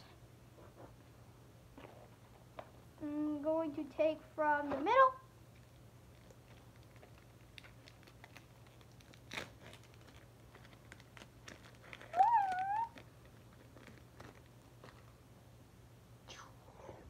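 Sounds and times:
foil wrapper crinkling: 0:05.7 - 0:15.2.

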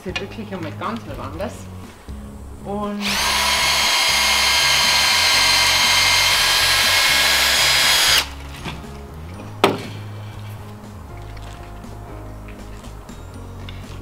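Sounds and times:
cordless drill boring into wood: 0:03.0 - 0:08.3.

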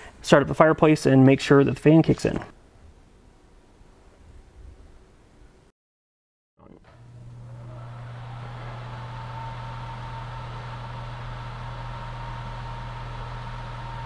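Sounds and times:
blower fan running: 0:06.8 - 0:14.0.

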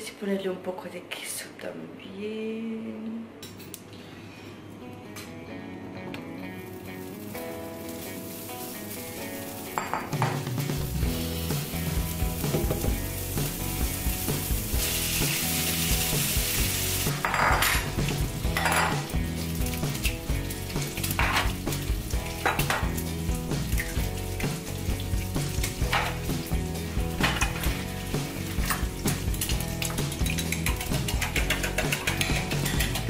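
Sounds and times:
bacon sizzling in a frying pan: 0:06.6 - 0:32.9.

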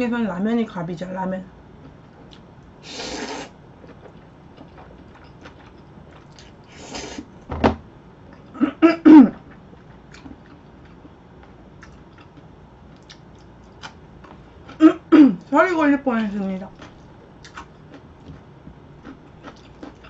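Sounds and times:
soft chewing: 0:01.8 - 0:07.2, 0:09.3 - 0:14.8, 0:16.2 - 0:20.0
noodle slurp: 0:02.9 - 0:03.5
person coughing: 0:08.6 - 0:09.4, 0:14.8 - 0:15.4.

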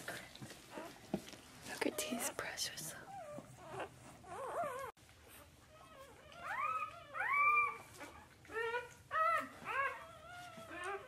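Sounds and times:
puppy whimpering: 0:00.7 - 0:01.0, 0:03.1 - 0:11.0.

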